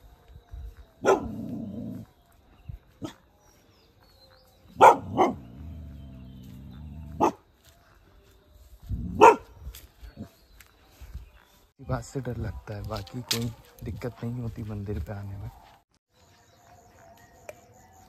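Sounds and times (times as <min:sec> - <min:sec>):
dogs barking: 0:01.0 - 0:02.1, 0:03.0 - 0:03.3, 0:04.7 - 0:07.5, 0:09.0 - 0:09.6.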